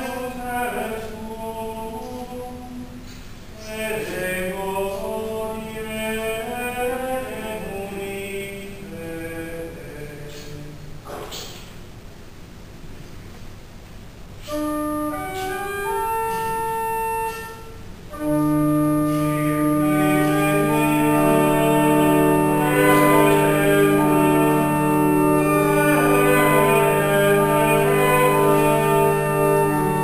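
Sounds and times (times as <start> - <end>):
church organ playing chords: 3.6 - 10.5, 14.4 - 30.0.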